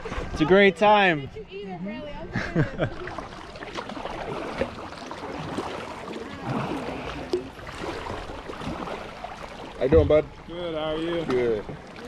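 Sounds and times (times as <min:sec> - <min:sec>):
paddles pulling through water: 0:00.0 - 0:12.0
water splashes and drips: 0:02.9 - 0:12.0.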